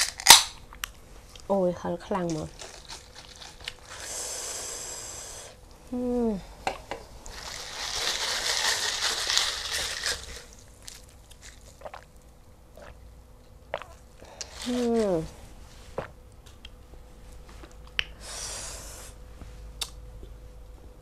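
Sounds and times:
ice rattling in fizzing drink: 7.3 - 11.8.

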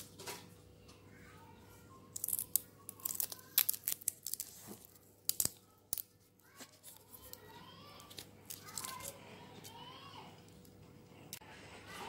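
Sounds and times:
wet leaves snapping and crackling: 2.2 - 6.1, 8.1 - 9.1.

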